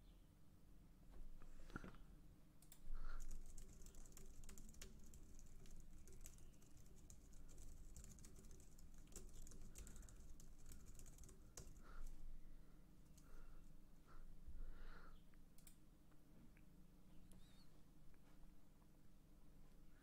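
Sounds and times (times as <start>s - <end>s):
keyboard typing: 2.6s - 12.1s.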